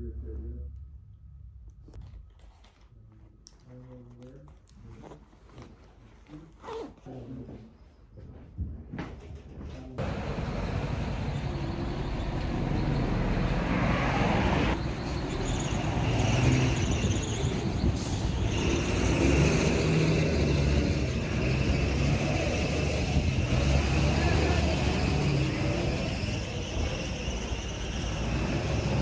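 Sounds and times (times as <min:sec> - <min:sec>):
rumble of passing vehicles: 0:10.0 - 0:29.0.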